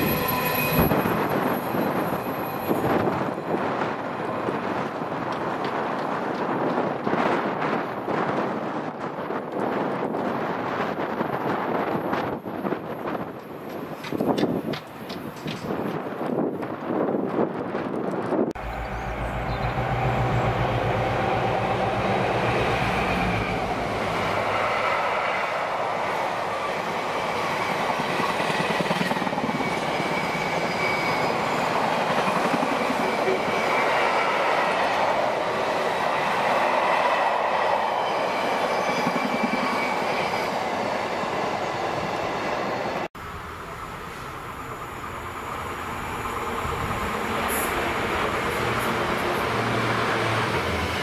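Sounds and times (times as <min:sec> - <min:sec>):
train wheels clattering over joints: 0:13.2 - 0:16.8
diesel locomotive engine drone: 0:18.5 - 0:35.7, 0:40.8 - 0:51.0.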